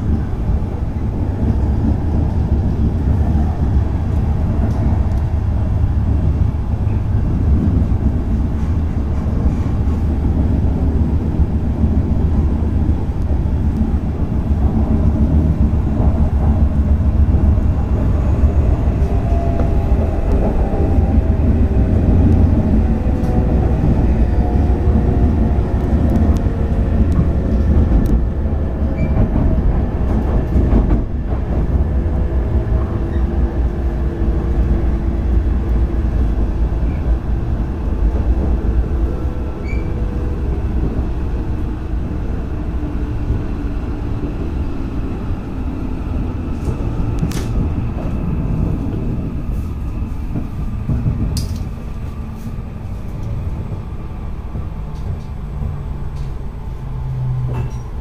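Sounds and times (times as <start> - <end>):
train running rumble: 0.0 - 58.0.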